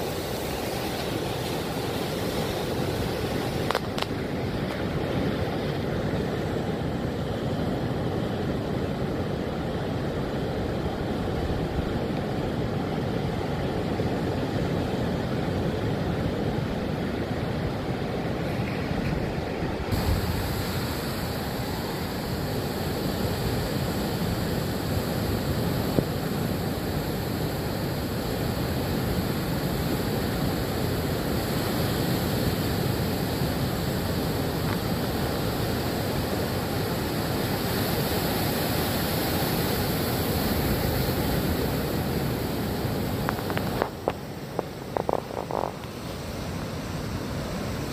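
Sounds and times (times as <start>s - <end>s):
surf breaking on shore: 0.0s - 47.9s
wind on microphone: 16.3s - 36.9s, 39.8s - 46.3s.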